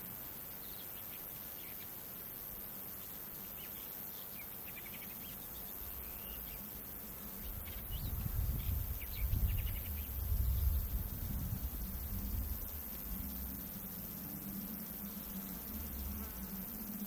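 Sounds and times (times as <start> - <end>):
high insect hum: 0.0 - 17.0
small birds chirping: 3.0 - 12.0
low rumble: 8.1 - 16.6.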